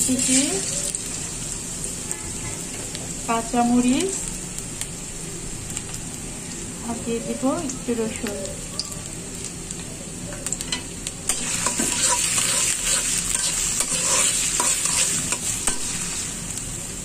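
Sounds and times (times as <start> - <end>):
vegetables sizzling in hot oil: 0.0 - 17.0
metal spatula scraping a pan: 10.7 - 16.1.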